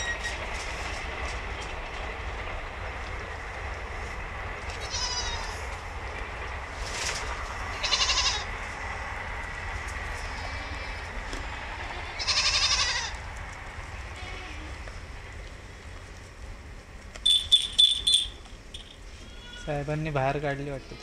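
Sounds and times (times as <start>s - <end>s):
steady low rumble: 0.3s - 19.2s
goat kids bleating: 4.8s - 5.6s, 7.7s - 8.5s, 10.2s - 13.2s, 14.1s - 14.8s, 19.1s - 19.8s, 20.7s - 21.0s.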